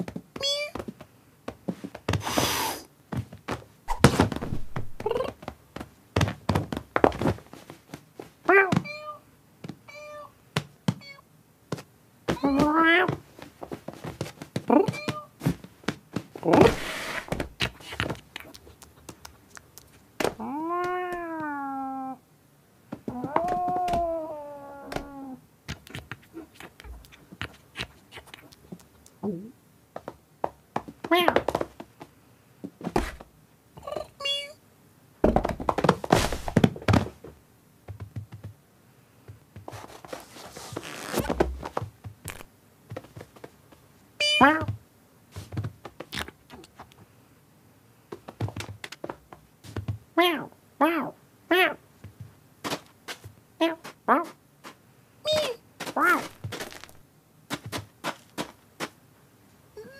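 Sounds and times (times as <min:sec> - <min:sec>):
rustling scuffle: 0:00.0 - 0:09.0, 0:11.7 - 0:19.3, 0:30.0 - 0:33.3, 0:35.3 - 0:37.4, 0:39.6 - 0:47.0, 0:52.0 - 0:59.0
cartoon cat meow: 0:00.4 - 0:00.8, 0:08.5 - 0:09.2, 0:09.9 - 0:10.3, 0:12.4 - 0:13.2, 0:14.7 - 0:15.3, 0:20.4 - 0:22.2, 0:23.1 - 0:25.4, 0:31.1 - 0:31.4, 0:33.8 - 0:34.6, 0:44.2 - 0:44.7, 0:50.2 - 0:51.8, 0:53.6 - 0:54.3, 0:55.3 - 0:56.3.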